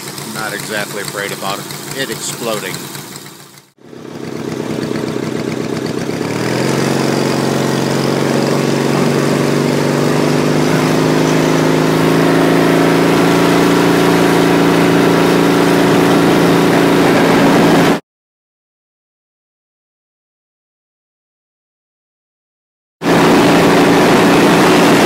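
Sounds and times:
go-kart engine accelerating: 0.0 - 18.0, 23.0 - 25.0.

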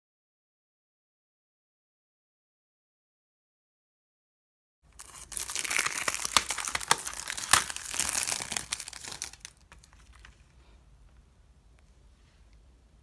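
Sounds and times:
cellophane crinkling and tearing: 5.0 - 10.4.

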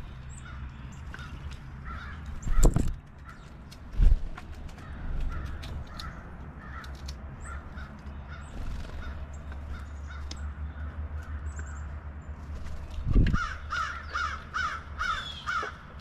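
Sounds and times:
steady low rumble: 0.0 - 15.1
crow cawing: 1.2 - 2.6, 4.8 - 8.4, 13.4 - 15.9.

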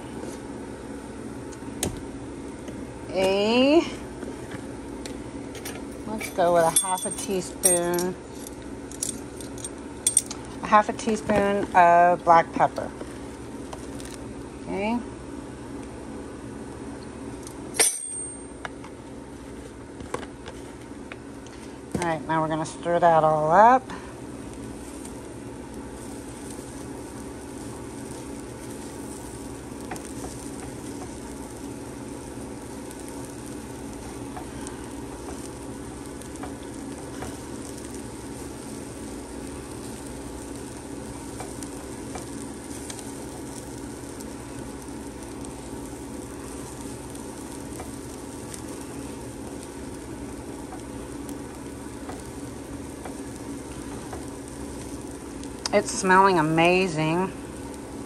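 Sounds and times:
food sizzling in a pan: 22.4 - 58.0.

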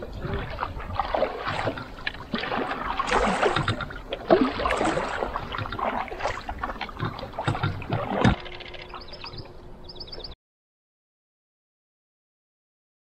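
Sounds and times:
paddle strokes in water: 0.0 - 9.5
water lapping along canoe hull: 0.0 - 10.3.

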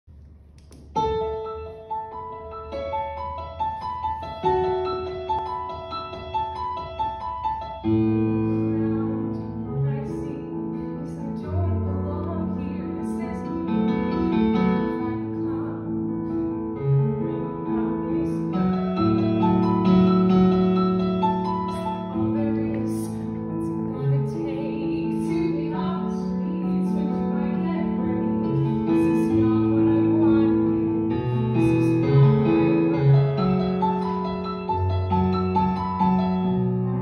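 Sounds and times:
piano accompaniment: 0.1 - 37.0.

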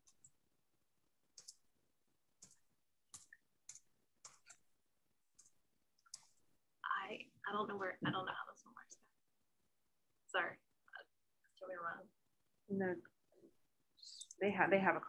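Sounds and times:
faint computer clicking: 1.3 - 1.6, 2.4 - 4.6, 5.3 - 6.4.

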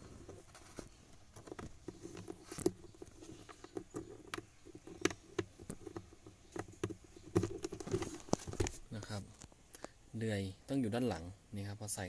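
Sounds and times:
faint rustle of hands: 0.0 - 10.0.

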